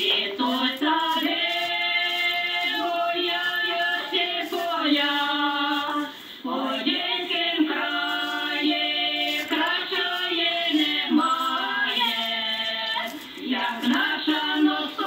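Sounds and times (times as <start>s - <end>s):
choir-like singing music: 0.0s - 15.0s.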